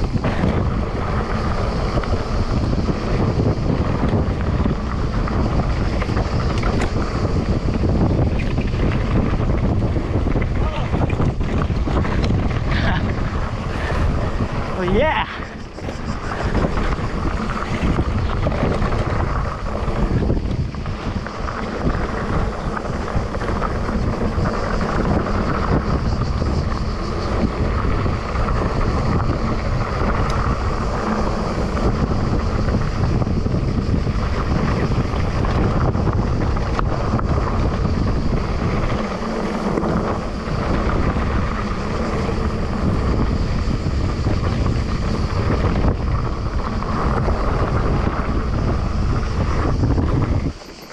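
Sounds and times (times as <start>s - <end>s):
bike tyres rattling on dirt trail: 0.0s - 50.9s
wind buffeting microphone: 0.0s - 50.9s.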